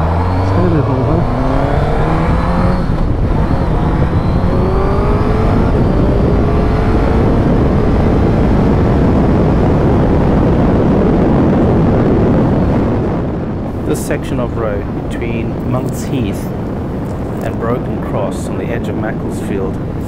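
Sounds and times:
motorcycle engine accelerating: 0:00.0 - 0:14.0
wind buffeting microphone: 0:00.0 - 0:20.0.

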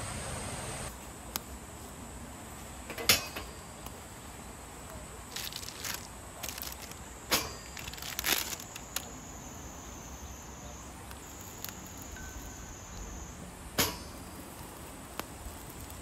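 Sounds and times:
high insect buzz: 0:00.0 - 0:16.0
wood fire crackling: 0:00.7 - 0:16.0
sharp pops of fire: 0:05.7 - 0:09.2, 0:13.7 - 0:16.0.

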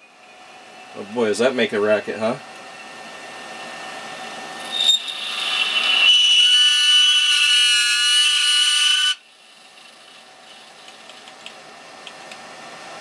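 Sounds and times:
dry ice squealing on metal: 0:04.6 - 0:09.2.

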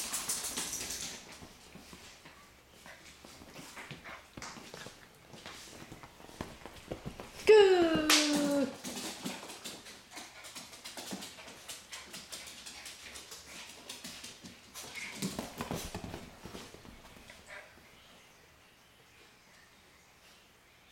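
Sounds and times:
dog nails clicking on hardwood floor: 0:00.0 - 0:02.1, 0:08.0 - 0:17.0.

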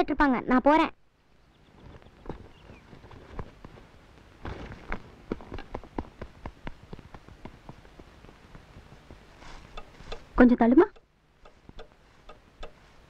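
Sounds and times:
children's running footsteps: 0:04.5 - 0:10.2.

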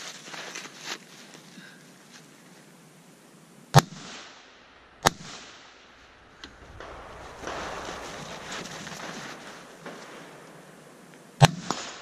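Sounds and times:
crawling on gravel: 0:00.0 - 0:02.7, 0:06.5 - 0:11.0
rifle shot: 0:03.7 - 0:12.0.

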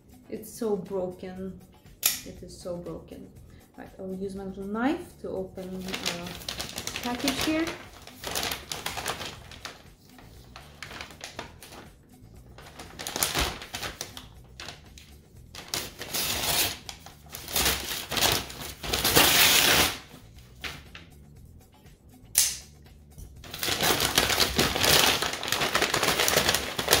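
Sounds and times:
packaging crinkling and tearing: 0:05.8 - 0:09.8, 0:10.6 - 0:11.8, 0:12.6 - 0:14.8, 0:15.6 - 0:20.0, 0:23.5 - 0:27.0
knife cutting package: 0:15.6 - 0:20.0, 0:23.5 - 0:27.0.

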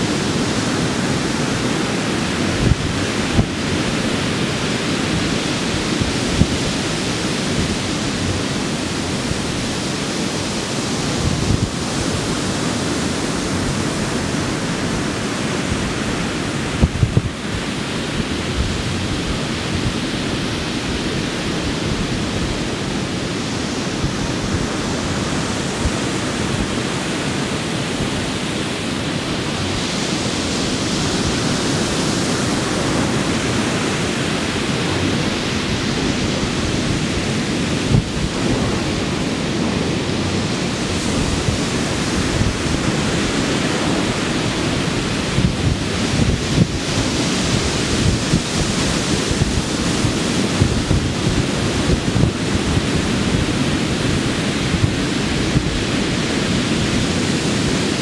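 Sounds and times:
surf breaking on a sandy beach: 0:00.0 - 0:58.0.

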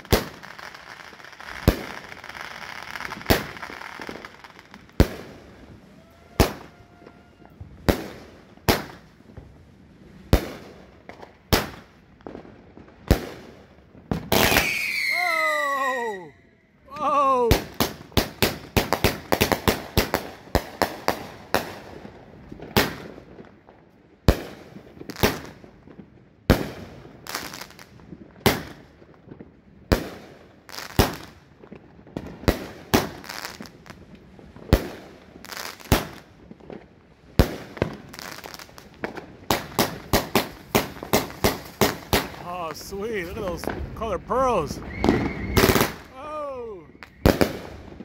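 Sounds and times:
fireworks bangs: 0:00.0 - 0:09.6, 0:10.3 - 0:16.3, 0:37.4 - 0:48.0.

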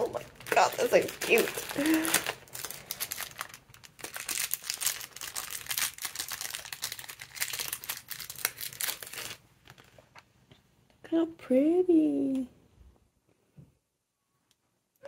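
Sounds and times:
plastic bags crinkling: 0:00.0 - 0:10.2.

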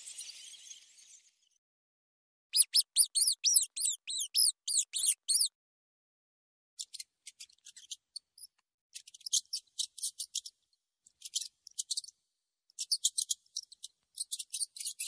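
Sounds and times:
rats squeaking: 0:02.6 - 0:05.5.

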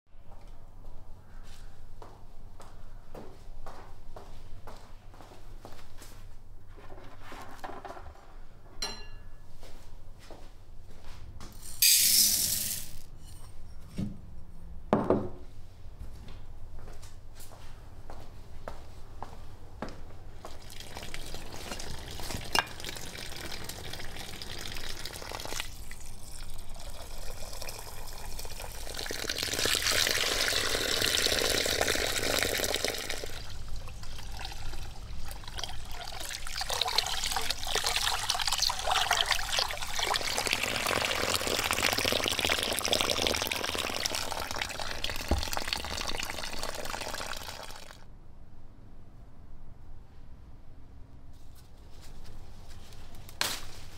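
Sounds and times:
water pouring and splashing: 0:20.5 - 0:48.0.

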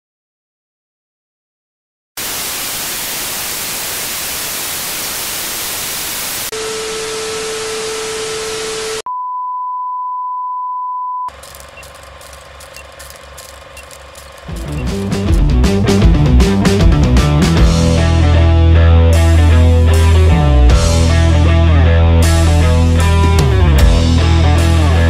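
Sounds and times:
television static hiss: 0:02.2 - 0:09.0
crackly hum: 0:11.3 - 0:15.0.

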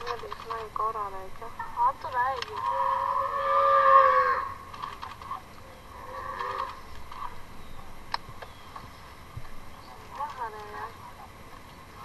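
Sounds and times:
wild boar squealing: 0:02.7 - 0:04.6.

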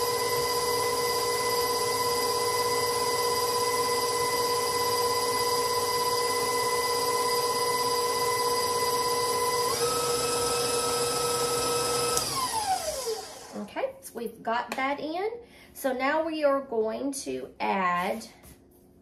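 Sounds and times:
stand mixer motor whining: 0:00.0 - 0:13.7.

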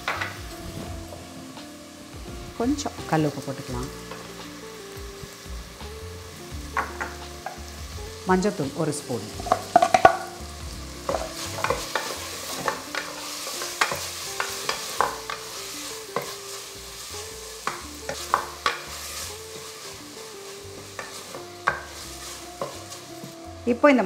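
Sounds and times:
food sizzling in oil: 0:00.0 - 0:24.0
wooden spoon scraping pot: 0:11.0 - 0:23.4.

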